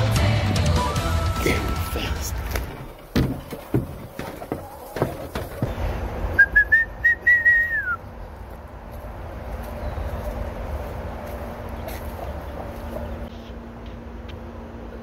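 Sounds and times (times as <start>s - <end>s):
person whistling: 0.7s - 2.1s, 6.4s - 8.0s
sharp knocks: 3.1s - 5.8s.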